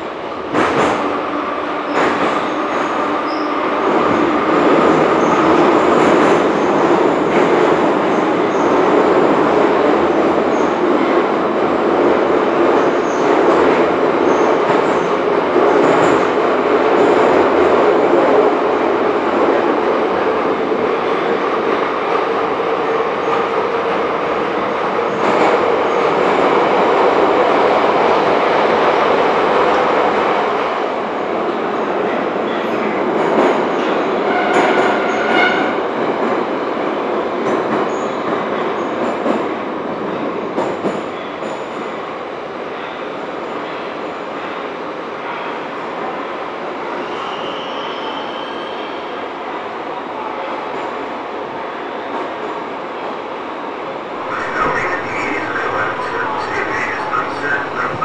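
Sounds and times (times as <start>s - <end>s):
wheels rumbling on rail: 53.7s - 58.0s.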